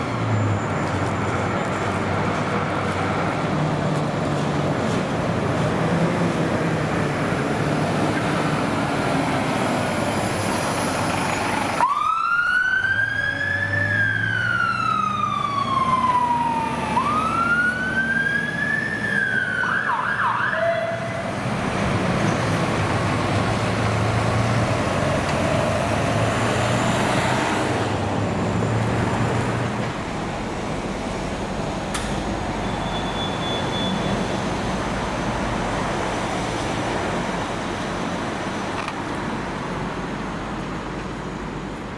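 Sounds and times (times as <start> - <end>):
road traffic: 0.0 - 41.9
emergency vehicle siren: 11.1 - 21.4.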